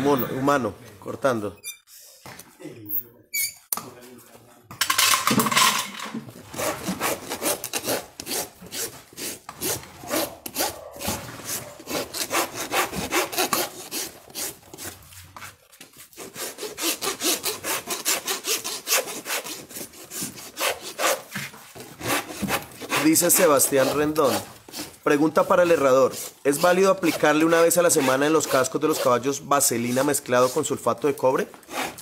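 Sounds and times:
hoof rasp filing: 0:06.5 - 0:15.3, 0:16.0 - 0:31.0, 0:31.6 - 0:32.0.

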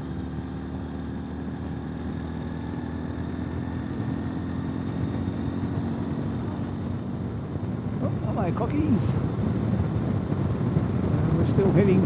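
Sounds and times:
motorcycle engine riding: 0:00.0 - 0:12.0.

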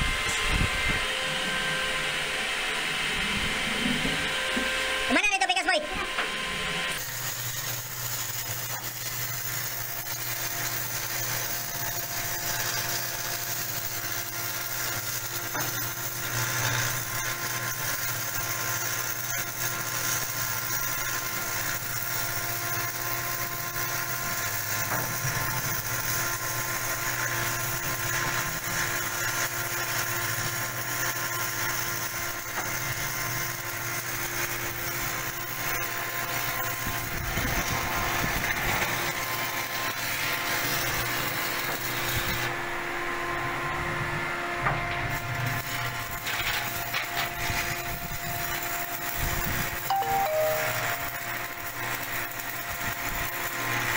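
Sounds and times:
machine drone: 0:00.0 - 0:05.2.

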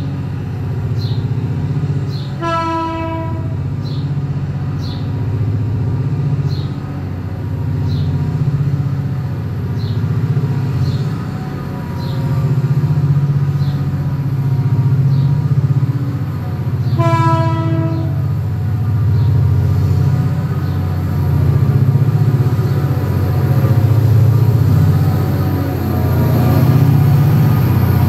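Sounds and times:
locomotive engine running: 0:00.0 - 0:28.0
locomotive horn blast: 0:02.4 - 0:03.7, 0:16.8 - 0:18.5.

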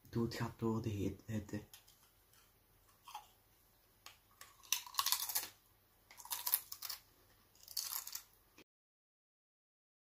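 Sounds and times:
tortilla chip crunching: 0:04.3 - 0:08.4.

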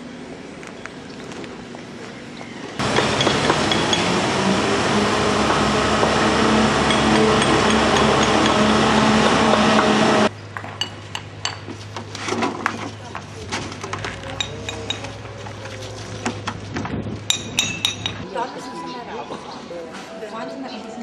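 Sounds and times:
machine humming: 0:02.8 - 0:10.3.

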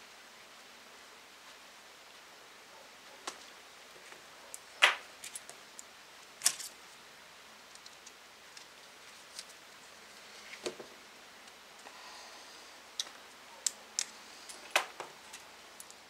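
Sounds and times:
small metal parts clicking and clinking: 0:06.4 - 0:06.8.

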